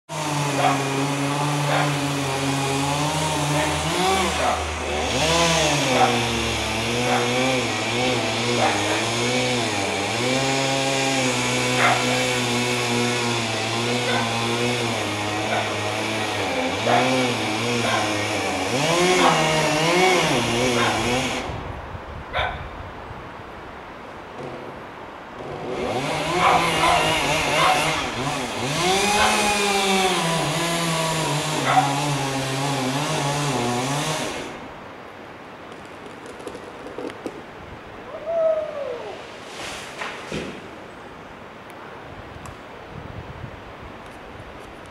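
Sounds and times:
chainsaw idling and revving: 0:00.1 - 0:21.6, 0:25.4 - 0:34.7.

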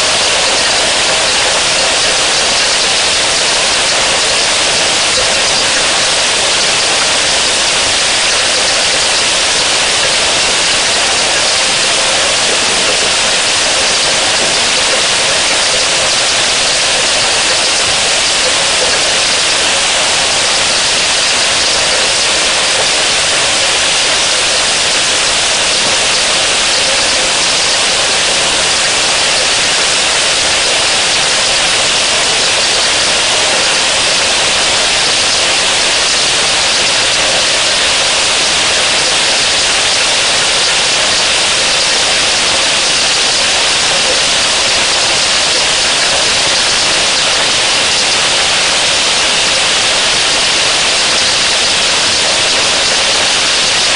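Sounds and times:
heavy rain falling: 0:00.0 - 0:53.9.

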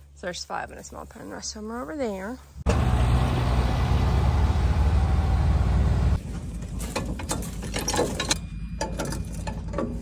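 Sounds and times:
tractor diesel engine running: 0:02.6 - 0:10.0
sharp metal clinks and knocks: 0:06.8 - 0:10.0.

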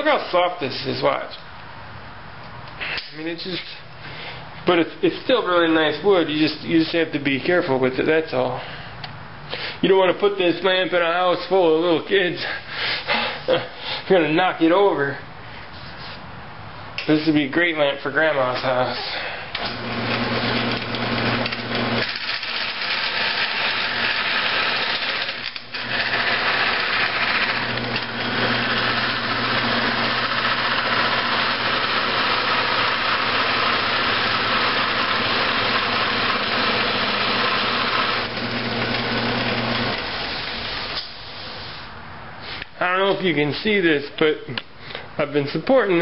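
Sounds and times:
lathe motor humming: 0:19.6 - 0:41.0
tool hissing cutting wood: 0:21.8 - 0:42.7.

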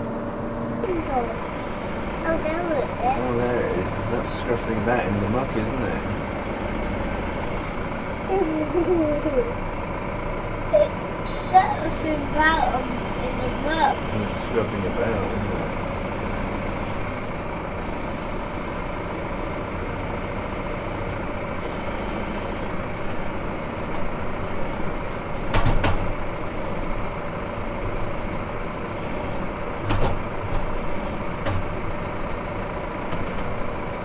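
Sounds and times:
tractor engine running: 0:00.0 - 0:34.0
loader clunks: 0:15.7 - 0:34.0.

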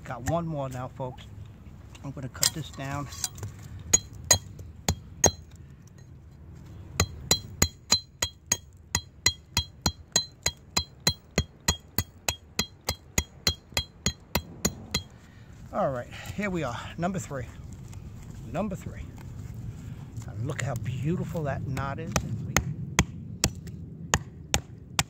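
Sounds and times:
wooden mallet striking knife: 0:07.0 - 0:15.1.

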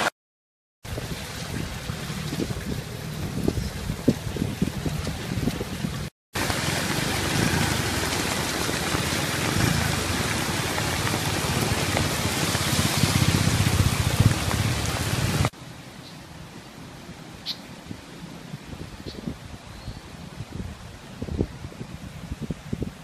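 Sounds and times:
heavy rain falling: 0:00.9 - 0:15.6
floodwater rushing over road: 0:00.9 - 0:23.0.

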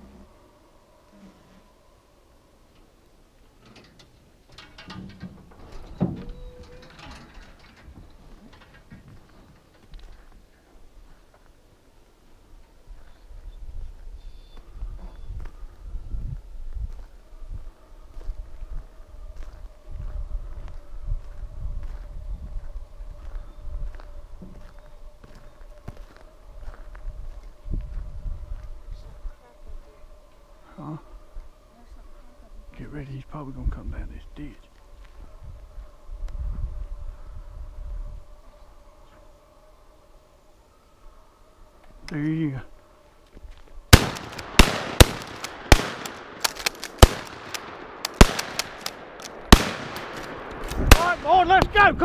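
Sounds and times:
faint steady tone: 0:00.0 - 0:33.0
footsteps on sandy dirt road: 0:09.0 - 0:29.9, 0:43.1 - 0:44.0
shotgun shots: 0:43.9 - 0:51.8
faint gunshot cracks: 0:44.0 - 0:51.3.

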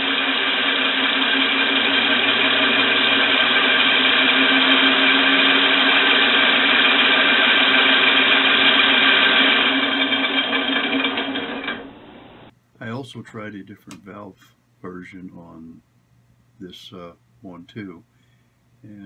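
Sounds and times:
compressed-air engine running: 0:00.0 - 0:12.5.

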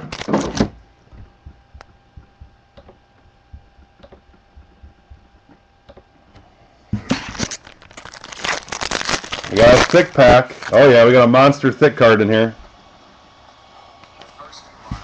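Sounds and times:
plastic wrapper crinkling: 0:00.0 - 0:00.6, 0:07.1 - 0:11.1
low hum: 0:00.1 - 0:09.9.

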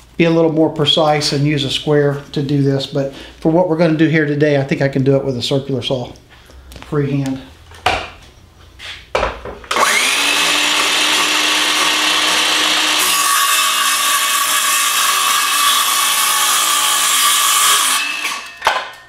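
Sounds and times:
circular saw whining: 0:09.7 - 0:18.6
saw cutting wooden board: 0:09.7 - 0:18.6.

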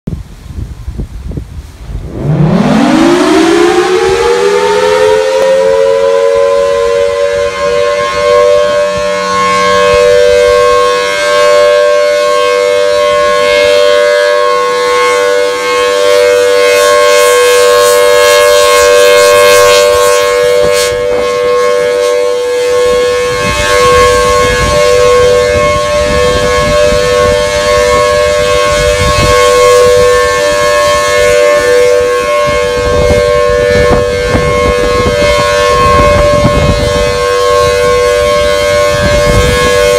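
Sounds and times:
wind on microphone: 0:00.1 - 0:12.2, 0:16.2 - 0:39.9
microphone handling rumble: 0:00.6 - 0:03.3
warning siren two-pitch tone: 0:01.9 - 0:39.9.

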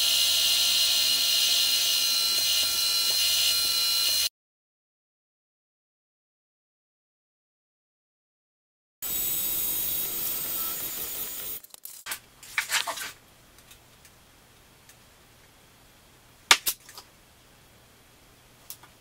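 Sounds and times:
hissing machine: 0:09.0 - 0:11.6
small metal parts clinking: 0:11.5 - 0:12.1.

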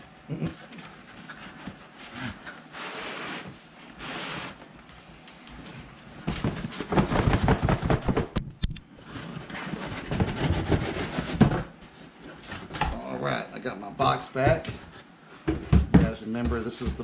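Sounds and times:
cardboard scraping and rustling: 0:09.0 - 0:11.7.

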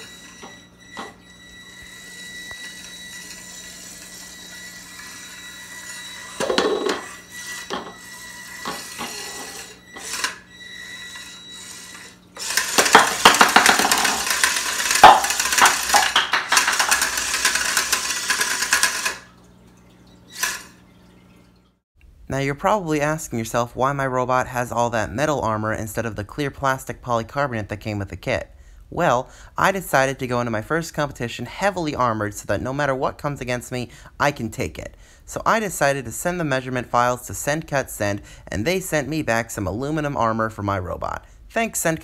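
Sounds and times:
robot clattering on stone countertop: 0:06.4 - 0:07.1, 0:12.4 - 0:19.2
small robot knocking and rattling: 0:12.4 - 0:19.2.

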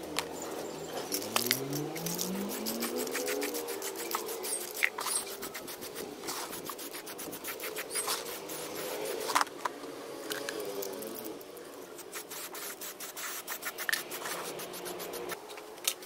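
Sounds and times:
plastic box rubbing on cardboard: 0:02.1 - 0:09.4, 0:12.0 - 0:15.4.

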